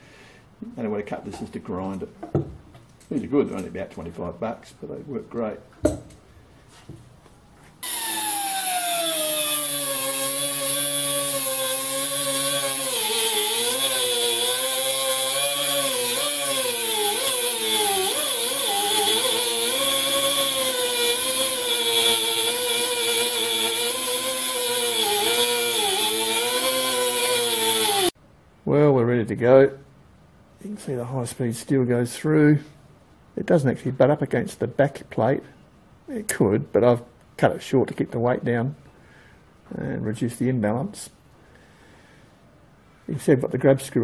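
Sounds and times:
air grinder cutting steel: 0:07.8 - 0:28.2.

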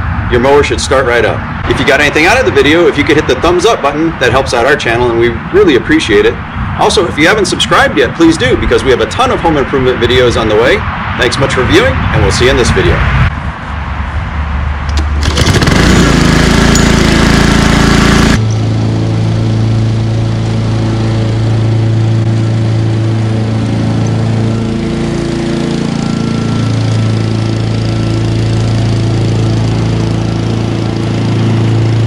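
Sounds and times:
lawn mower engine running: 0:14.9 - 0:32.0.

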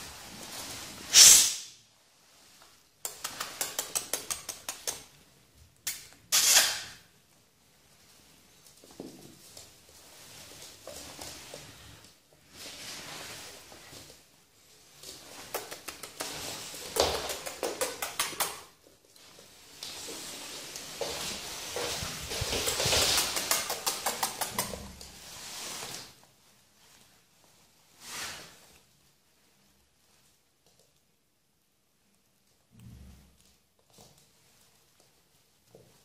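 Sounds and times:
puppy scuffling: 0:00.0 - 0:01.1, 0:02.1 - 0:36.0
rustling: 0:00.0 - 0:36.0
claws clicking on wooden floor: 0:03.0 - 0:05.2, 0:15.0 - 0:20.0, 0:21.8 - 0:25.2.

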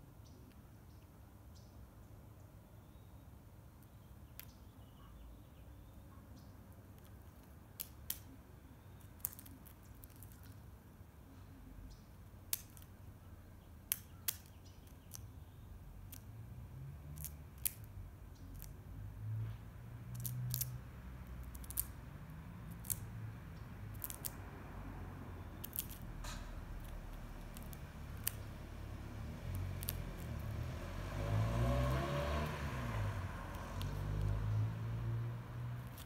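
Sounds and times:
beak pecking peanut shell: 0:06.9 - 0:10.7, 0:12.1 - 0:13.1, 0:13.8 - 0:16.3, 0:17.1 - 0:18.8, 0:20.1 - 0:23.2, 0:23.9 - 0:24.4, 0:25.4 - 0:30.8, 0:33.4 - 0:34.4, 0:35.8 - 0:36.0.

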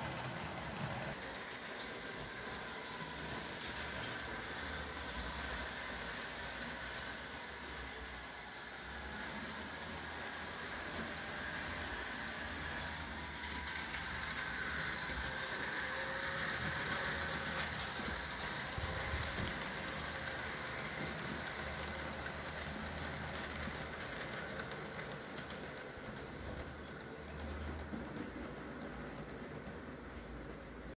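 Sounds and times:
model train motor hum and whine: 0:00.0 - 0:30.9
wheels rumbling on track: 0:08.8 - 0:30.9.

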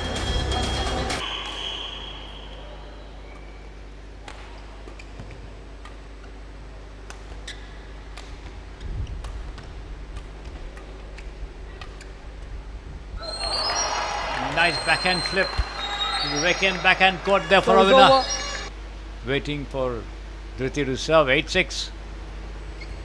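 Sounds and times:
faint hall hum: 0:00.0 - 0:23.0
racket hitting shuttlecock: 0:04.2 - 0:08.6
shoe squeaks: 0:07.3 - 0:08.0, 0:17.6 - 0:18.7, 0:22.7 - 0:23.0.

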